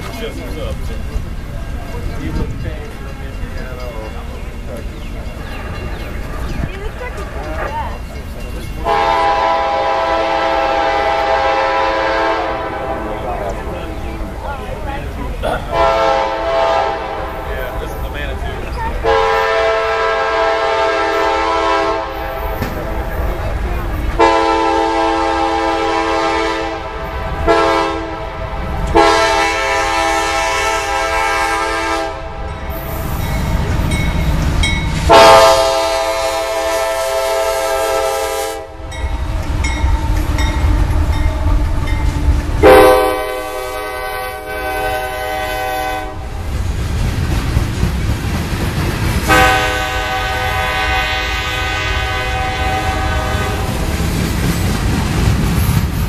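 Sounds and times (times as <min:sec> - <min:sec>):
low train running noise: 0:00.0 - 0:56.0
freight train horn blasts: 0:08.8 - 0:13.4, 0:15.7 - 0:17.5, 0:19.0 - 0:22.6, 0:24.2 - 0:33.1, 0:35.0 - 0:46.4, 0:49.2 - 0:54.0.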